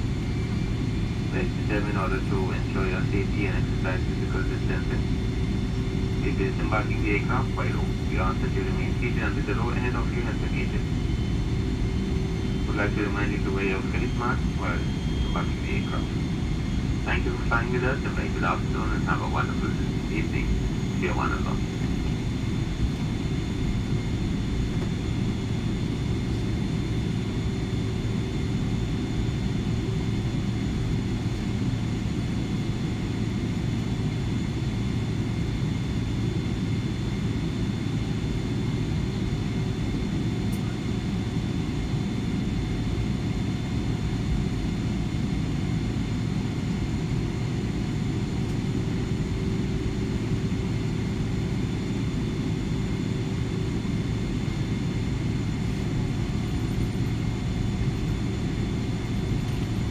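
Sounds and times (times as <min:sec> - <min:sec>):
airliner cabin hum: 0:00.0 - 0:59.9.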